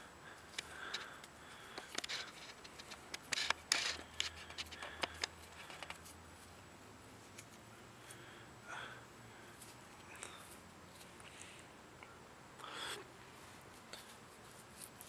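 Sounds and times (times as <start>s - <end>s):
rustle: 0.0s - 15.0s
hands fumbling: 0.5s - 6.1s
metal rings clicking and scraping: 0.5s - 6.1s.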